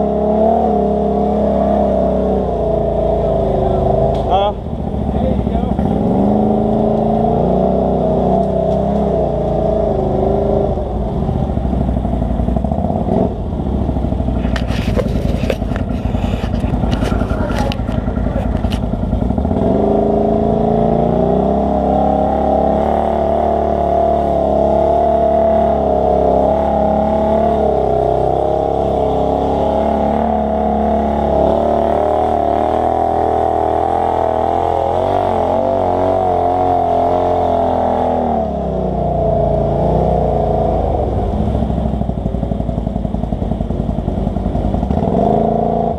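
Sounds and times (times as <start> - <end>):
atv engine running: 0.0 - 45.9
clattering and scraping: 14.4 - 19.3.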